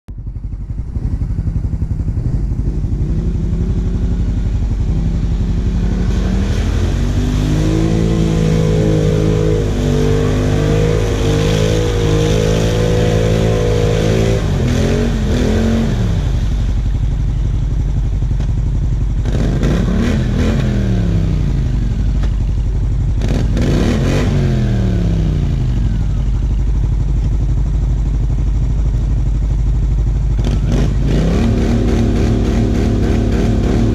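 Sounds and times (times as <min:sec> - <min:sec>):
low engine rumble: 0:00.1 - 0:33.9
atv engines revving: 0:00.5 - 0:33.9.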